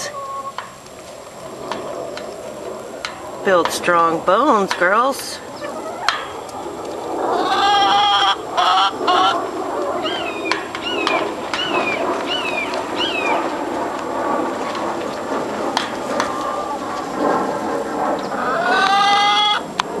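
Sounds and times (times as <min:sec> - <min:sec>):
hens calling: 0:00.0 - 0:00.6, 0:04.8 - 0:06.6, 0:07.3 - 0:13.4, 0:18.2 - 0:19.7.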